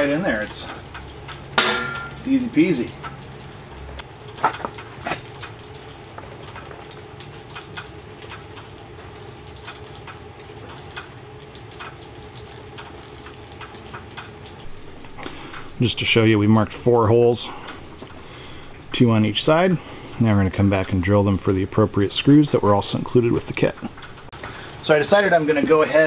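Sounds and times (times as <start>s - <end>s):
low steady hum: 0.0s - 26.0s
small ticks and scrapes: 3.0s - 15.7s.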